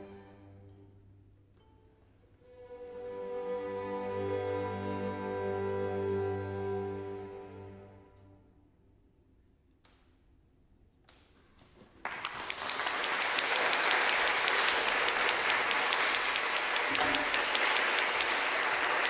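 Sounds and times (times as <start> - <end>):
audience applause: 11.8 - 19.0.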